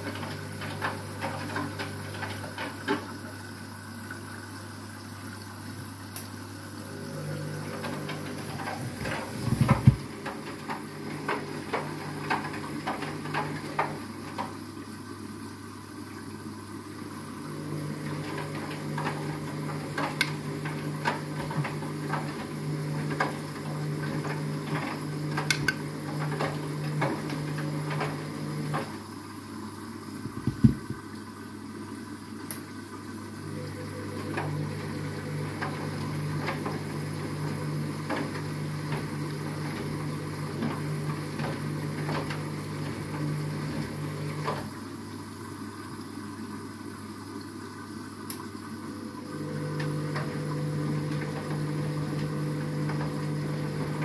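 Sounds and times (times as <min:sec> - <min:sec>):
washing machine drum motor humming: 0:00.0 - 0:54.0
water splashing in drum: 0:05.7 - 0:14.7, 0:30.2 - 0:31.1.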